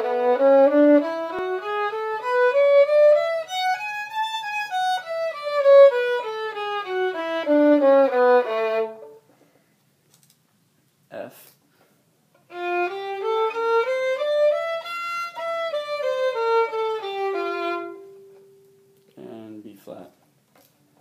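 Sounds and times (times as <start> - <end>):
violin playing a scale: 0.0 - 9.2, 12.4 - 18.8.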